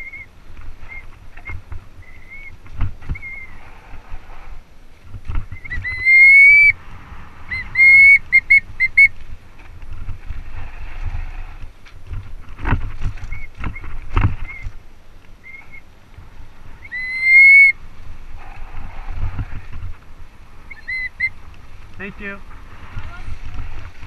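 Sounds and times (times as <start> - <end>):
bike rattling on dirt trail: 0.0 - 6.0, 8.5 - 15.2, 17.8 - 24.0
bike disc brakes squealing: 3.1 - 3.6, 5.4 - 6.7.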